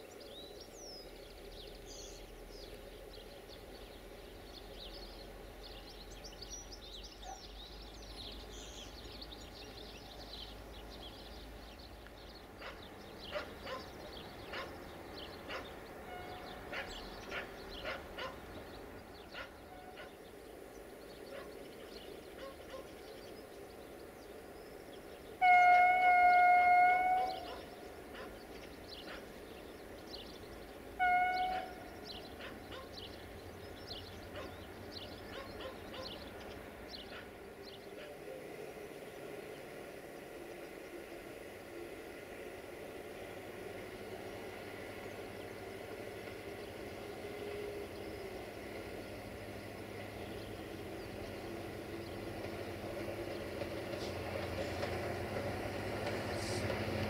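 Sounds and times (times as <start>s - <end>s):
faint birdsong: 0.0s - 57.0s
locomotive horn blast: 16.0s - 16.7s, 19.6s - 20.1s, 25.4s - 27.6s, 30.9s - 32.0s.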